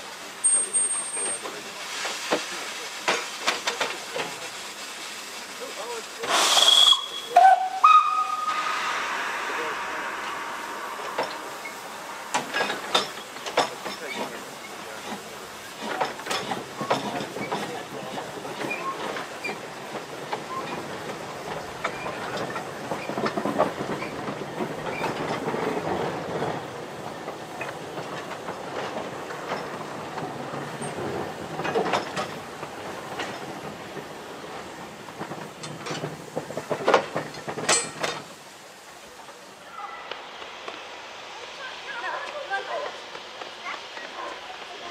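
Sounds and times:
steam locomotives rolling: 0.0 - 44.9
wheels clanking over rail joints: 5.8 - 39.5.

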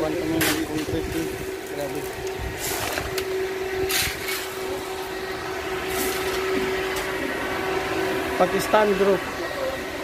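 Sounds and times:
steady machine hum: 0.0 - 10.0
shovel scraping gravel: 2.0 - 4.7.

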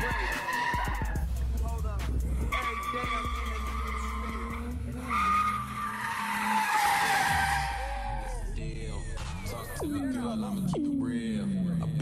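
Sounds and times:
tyres squealing: 0.0 - 1.2, 2.5 - 8.4
car engine running: 0.0 - 10.6.

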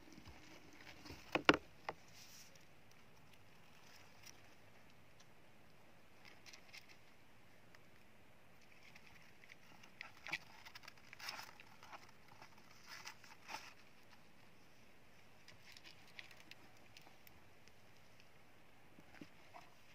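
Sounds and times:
hamsters scrabbling in bedding: 8.6 - 14.5.

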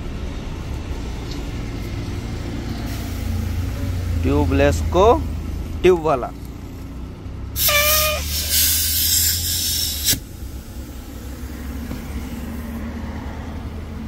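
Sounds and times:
air hissing loudly: 2.8 - 3.7, 7.6 - 12.8
short whistle: 7.6 - 10.2.

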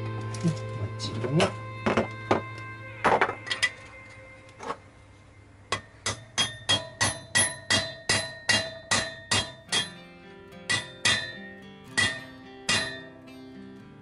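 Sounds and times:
hammer tapping metal: 5.7 - 10.0, 10.7 - 13.1.

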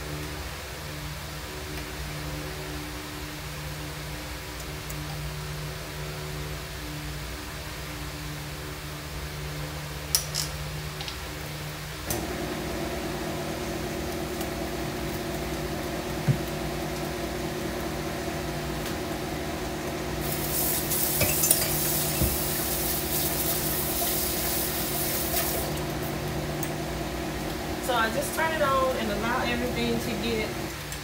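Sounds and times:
stand mixer motor hum: 12.1 - 27.9, 29.7 - 30.8
hiss: 20.2 - 25.7.

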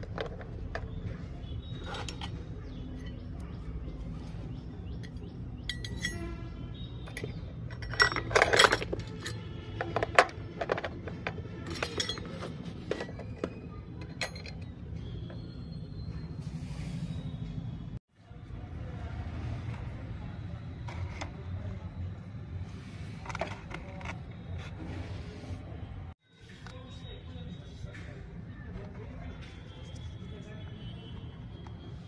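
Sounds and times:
toy pots and pans clattering: 0.0 - 1.1, 7.0 - 14.9.

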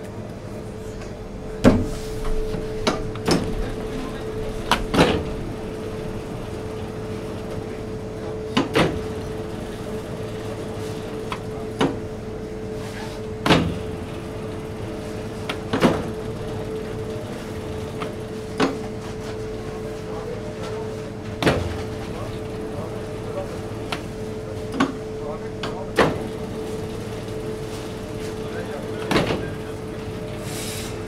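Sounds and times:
dough sheeter humming: 0.0 - 31.0
sharp clacks of controls: 11.2 - 12.1, 15.4 - 19.4, 23.3 - 30.2.

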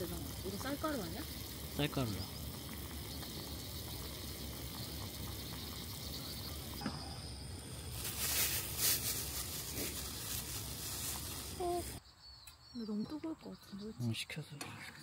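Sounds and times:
soup simmering and bubbling: 1.3 - 6.9
rustling: 7.8 - 12.0.

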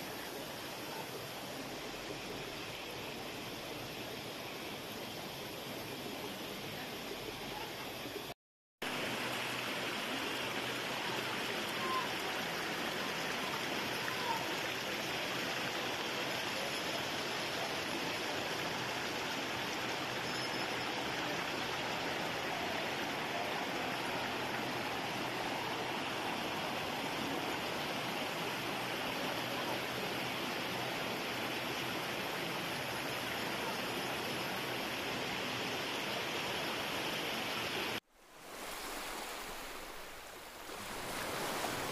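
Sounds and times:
river water rushing over boulders: 8.9 - 41.9.

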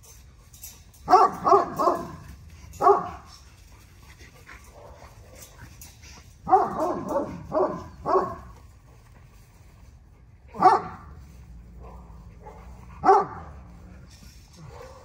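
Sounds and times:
puppy barking: 1.1 - 3.3, 6.4 - 8.6, 10.5 - 11.2, 11.8 - 13.6, 14.6 - 15.0.

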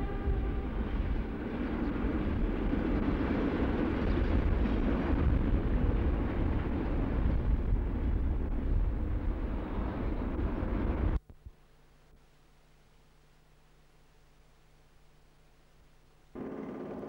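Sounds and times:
train rumbling along track: 0.0 - 11.2.

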